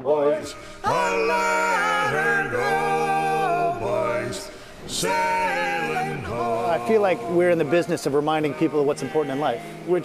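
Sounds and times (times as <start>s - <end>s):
person singing slow song: 0.0s - 10.0s.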